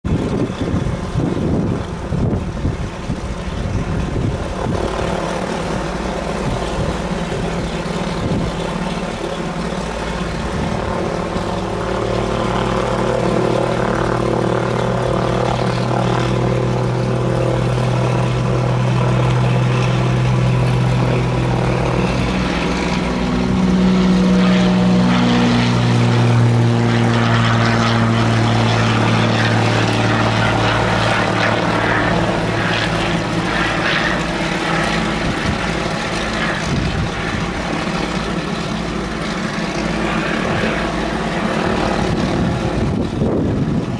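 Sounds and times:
propeller plane engine drone: 0.0 - 43.9.

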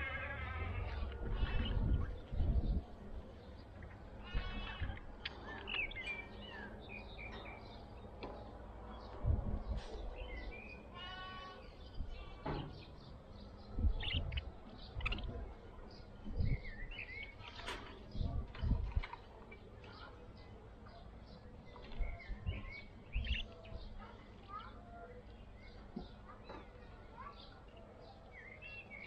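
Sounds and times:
budgerigars chirping: 13.9 - 15.4, 22.5 - 23.5.

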